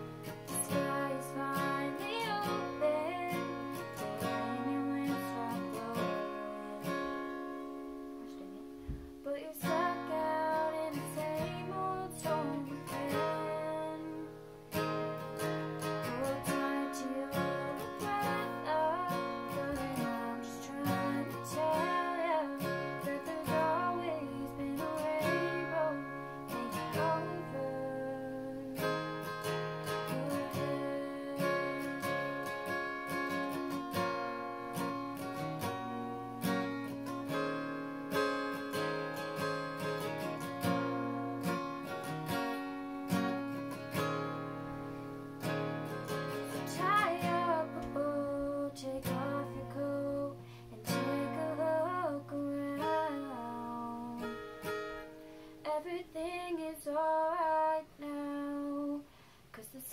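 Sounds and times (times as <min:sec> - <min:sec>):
acoustic guitar strumming: 0:00.0 - 0:59.1
young woman singing: 0:00.2 - 0:42.4, 0:45.4 - 0:59.9.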